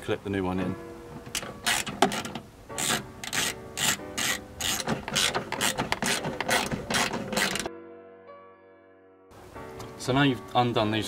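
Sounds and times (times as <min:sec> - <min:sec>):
socket ratchet clicking: 0:01.3 - 0:07.7.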